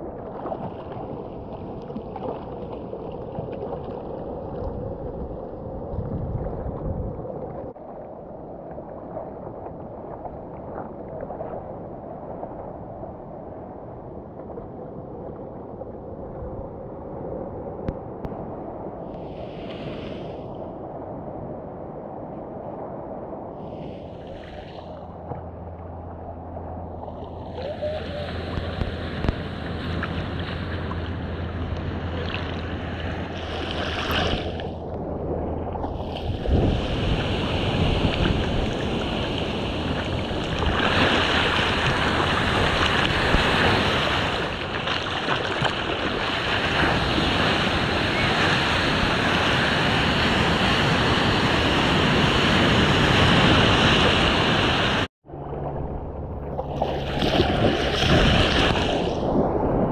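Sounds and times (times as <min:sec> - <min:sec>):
water sloshing and lapping: 0:00.0 - 0:11.8, 0:23.7 - 0:48.8, 0:55.2 - 0:59.9
wind on microphone: 0:00.0 - 0:59.9.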